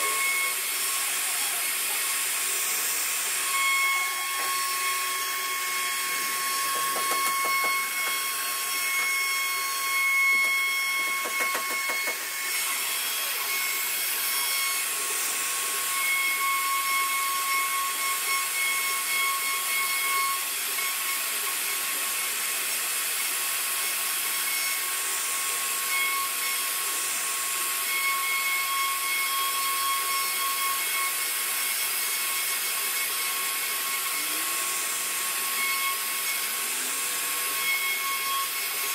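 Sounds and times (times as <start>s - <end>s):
hiss of cutting wood: 0.0s - 15.4s
router spindle whining: 0.0s - 38.9s.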